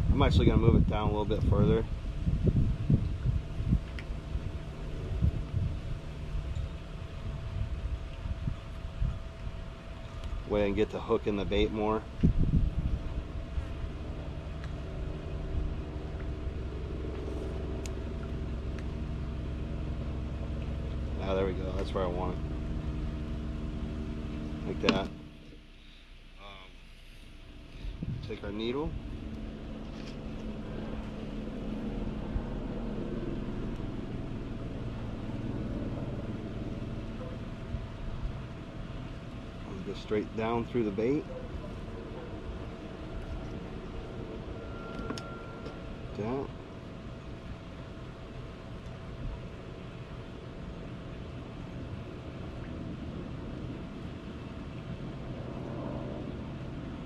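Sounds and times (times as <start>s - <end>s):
low engine hum: 0.0s - 57.0s
motor droning: 0.0s - 57.0s.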